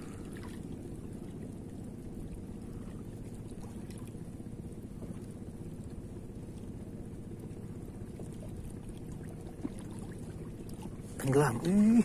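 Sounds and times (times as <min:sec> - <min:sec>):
waves lapping on rocky shore: 0:00.0 - 0:00.3.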